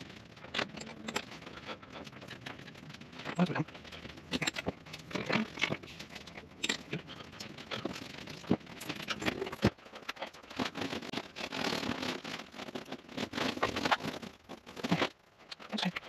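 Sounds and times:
hands handling wiring and parts: 0.0s - 16.0s.

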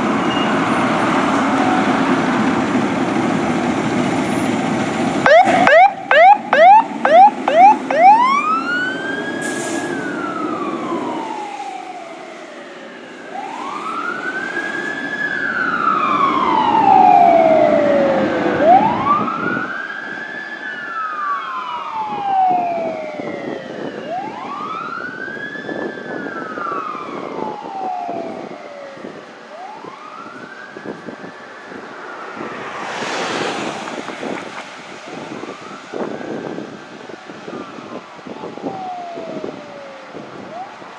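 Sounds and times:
diesel engine: 0.0s - 11.2s
fire engine siren yelp and wail: 0.0s - 40.9s.

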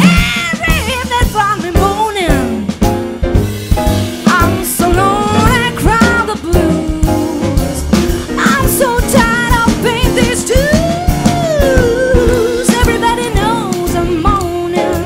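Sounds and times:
woman scat singing: 0.0s - 2.6s
jazz quartet playing: 0.0s - 15.0s.

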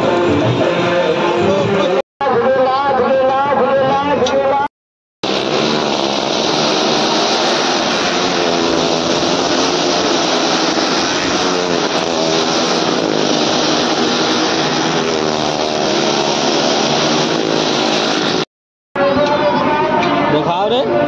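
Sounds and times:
motorcycle engines running hard: 0.0s - 2.0s, 5.2s - 18.5s
small car engine: 5.2s - 18.5s.

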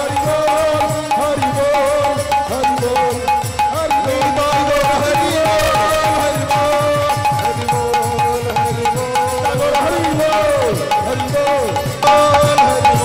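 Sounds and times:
hand drum fast rhythm: 0.0s - 13.0s
harmonium holding a note: 1.9s - 9.0s.

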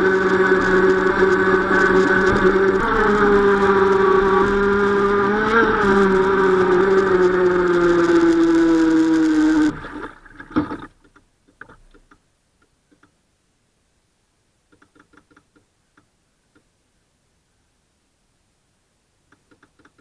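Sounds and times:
electric motors whining: 0.0s - 10.1s
water rushing: 0.0s - 11.0s
faint ticks: 11.0s - 13.2s, 14.7s - 16.7s, 19.3s - 20.0s.

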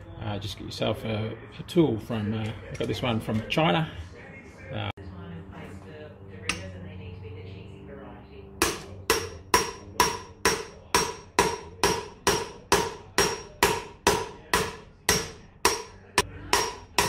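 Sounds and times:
hammer striking metal driver: 8.6s - 17.0s.

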